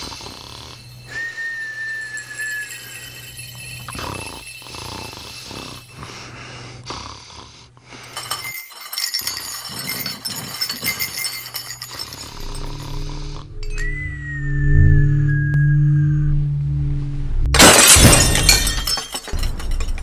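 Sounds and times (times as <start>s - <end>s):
steady low hum: 0.0s - 8.6s, 10.6s - 20.0s
china cups clinking and rattling: 0.6s - 6.0s, 8.1s - 13.8s.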